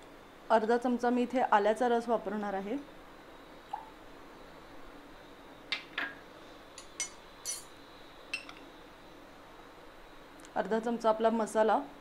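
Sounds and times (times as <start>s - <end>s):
spoon clinking on glass: 6.8s - 7.7s.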